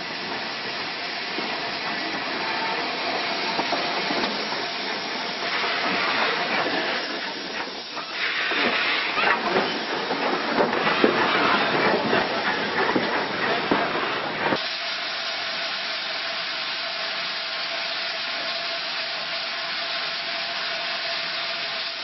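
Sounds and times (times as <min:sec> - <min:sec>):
steam hissing: 0:00.0 - 0:22.0
locomotive knocks and clanks: 0:03.4 - 0:14.6.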